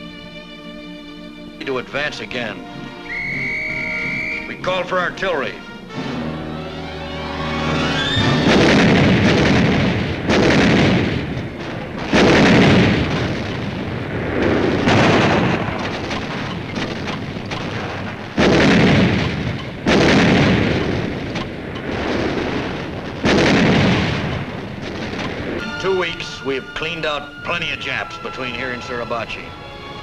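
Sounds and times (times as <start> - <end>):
artillery guns firing: 7.6 - 26.6.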